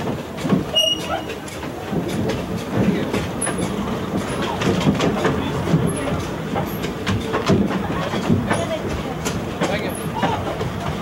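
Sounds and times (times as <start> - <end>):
clicks over rail joints: 0.0 - 11.0
train wheels rumbling and clattering: 0.0 - 11.0
high squeaks: 0.7 - 1.4.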